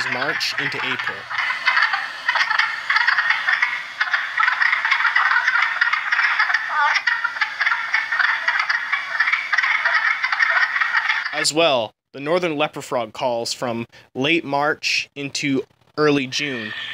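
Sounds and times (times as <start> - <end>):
frog chorus: 0.0 - 11.4, 16.4 - 16.9.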